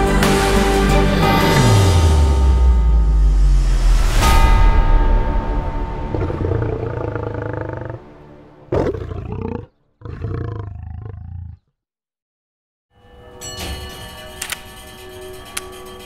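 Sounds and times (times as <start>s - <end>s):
soundtrack music: 0.0s - 9.6s
lion roaring: 6.0s - 11.7s.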